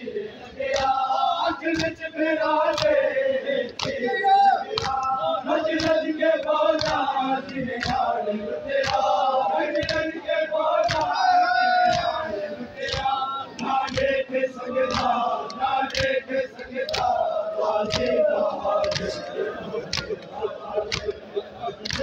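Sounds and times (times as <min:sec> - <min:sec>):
crowd of men chanting: 0:00.0 - 0:22.0
hands slapping chests: 0:00.7 - 0:01.0, 0:01.7 - 0:02.1, 0:02.7 - 0:03.0, 0:03.6 - 0:08.2, 0:08.8 - 0:09.2, 0:09.8 - 0:10.1, 0:10.8 - 0:11.2, 0:11.8 - 0:14.2, 0:14.8 - 0:17.2, 0:17.8 - 0:21.2, 0:21.8 - 0:22.0.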